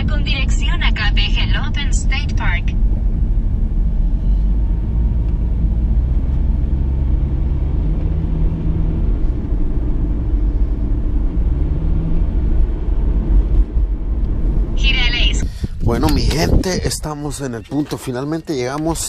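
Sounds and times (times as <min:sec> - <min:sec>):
car road and engine rumble: 0:00.0 - 0:19.0.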